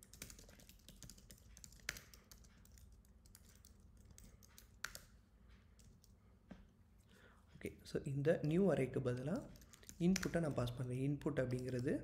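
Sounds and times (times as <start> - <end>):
computer keyboard typing: 0.0 - 5.2, 5.8 - 6.2, 9.1 - 12.0.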